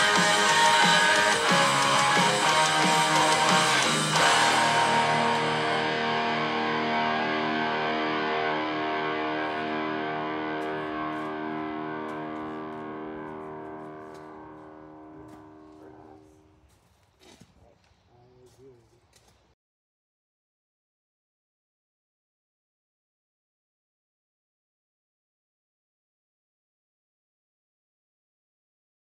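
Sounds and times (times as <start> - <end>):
guitar chord ringing: 0.0 - 16.5.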